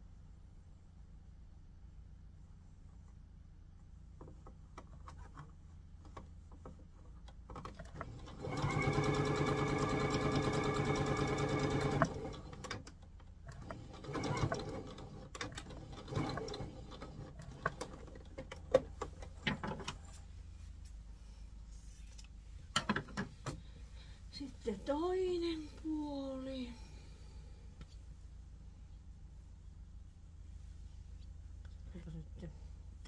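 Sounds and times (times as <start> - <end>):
sewing machine stitching: 7.7 - 18.3.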